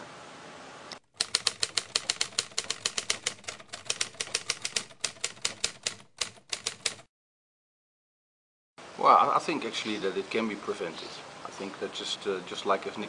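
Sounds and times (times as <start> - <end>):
typewriter keystroke clicks: 1.0 - 7.1.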